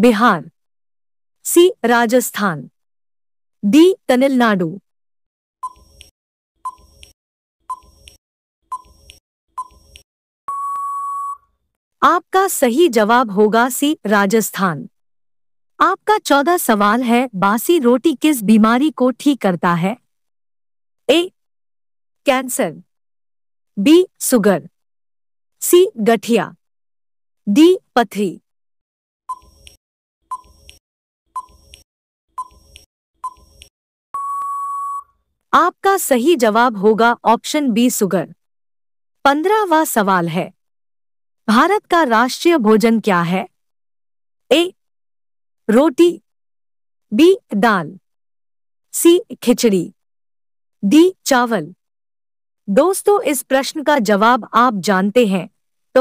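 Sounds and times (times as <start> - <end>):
short beeps with clicks: 5.6 - 11.5, 29.3 - 30.8, 32.4 - 35.2
long steady beep: 10.5 - 11.5, 34.2 - 35.1.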